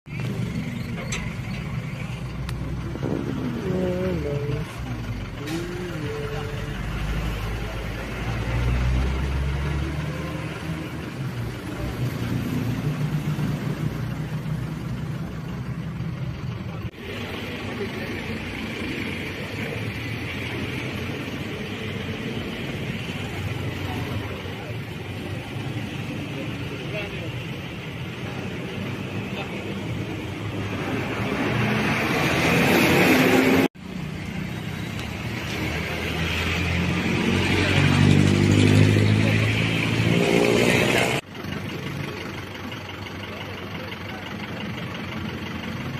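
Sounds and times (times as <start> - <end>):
engine humming: 0.1 - 45.9
deep rumble: 0.4 - 6.8.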